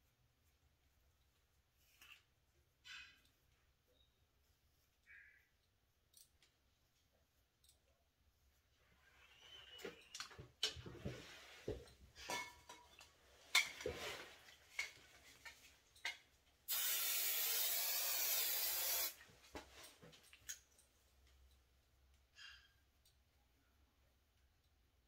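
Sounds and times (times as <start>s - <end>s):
aerosol spray hiss: 16.7s - 19.2s.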